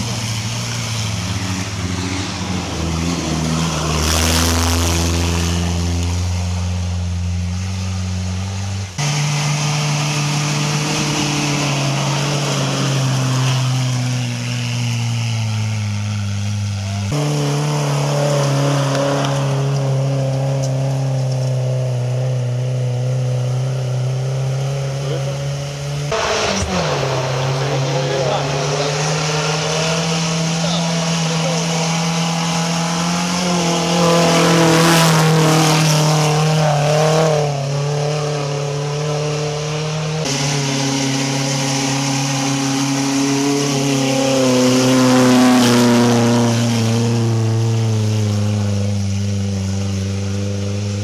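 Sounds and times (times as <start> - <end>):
off-road vehicle engines running: 0.0 - 51.0.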